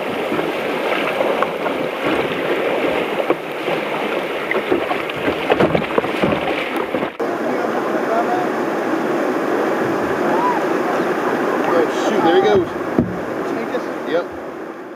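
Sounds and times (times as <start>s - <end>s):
whitewater rushing and splashing: 0.0s - 14.9s
wind on microphone: 8.5s - 14.9s.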